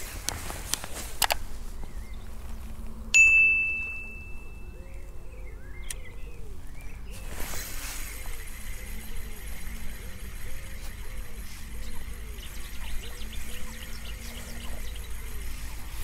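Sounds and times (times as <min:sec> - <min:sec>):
bell ding: 0:03.2 - 0:04.7.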